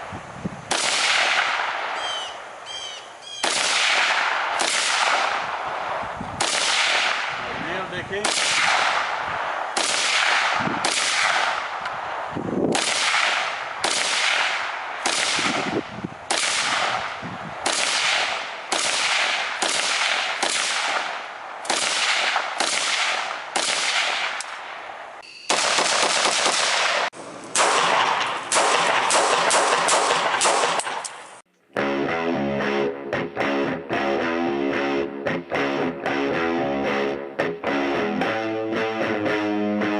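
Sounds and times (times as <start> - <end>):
rifle shots echoing: 0.7 - 2.2, 3.4 - 7.4, 8.2 - 31.1.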